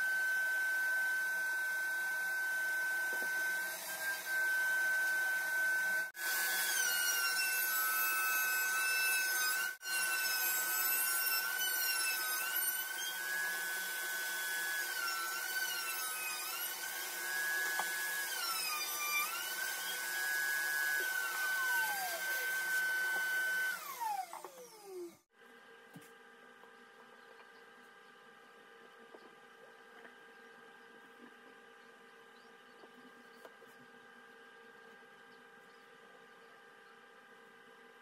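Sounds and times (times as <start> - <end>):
shop vacuum running: 0.0 - 6.8, 12.2 - 25.2
router motor whining: 0.0 - 25.3.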